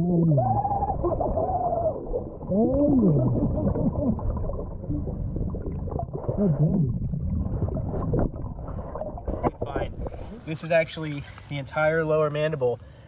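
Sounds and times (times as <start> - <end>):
underwater low rumble: 0.0 - 10.5
diver breathing bubbles: 2.8 - 10.5.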